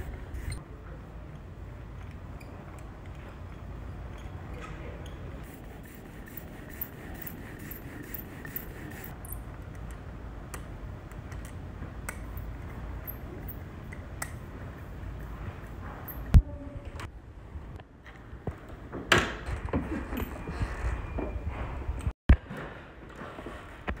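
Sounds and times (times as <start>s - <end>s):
ink roller scraping rub: 0.0s - 0.6s, 5.4s - 9.2s.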